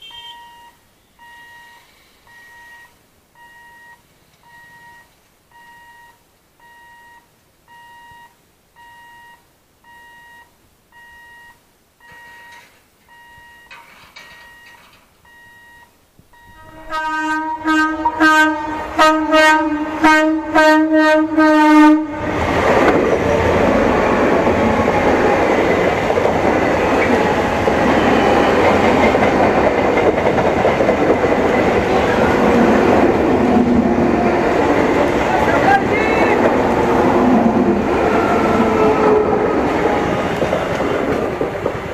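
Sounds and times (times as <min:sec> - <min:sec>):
train horn short blasts: 0:00.0 - 0:00.5, 0:16.6 - 0:22.2
faint electronic beep: 0:00.0 - 0:16.8
train wheels rumbling on rails: 0:22.1 - 0:41.9.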